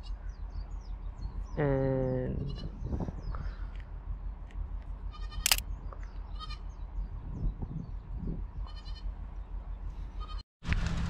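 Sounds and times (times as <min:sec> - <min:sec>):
steady low rumble: 0:00.0 - 0:11.0
sharp click: 0:05.4 - 0:05.7
goats bleating: 0:06.3 - 0:06.6, 0:10.2 - 0:10.4.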